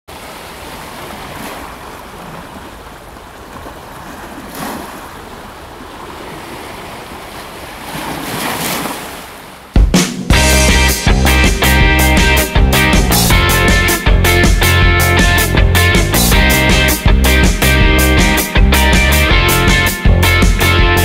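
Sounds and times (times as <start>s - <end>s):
waves washing on shore: 0.1s - 9.8s
wind: 0.1s - 10.3s.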